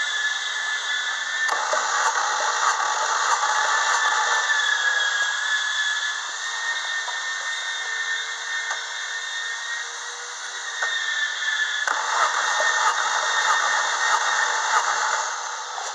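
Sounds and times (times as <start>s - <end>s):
engine starter motor cranking: 1.4s - 6.0s, 11.8s - 15.9s.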